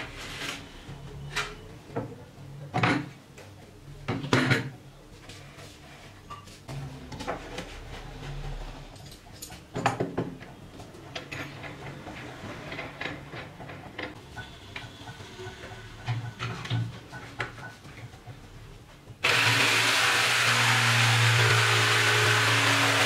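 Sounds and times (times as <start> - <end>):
jigsaw running: 19.2 - 23.0.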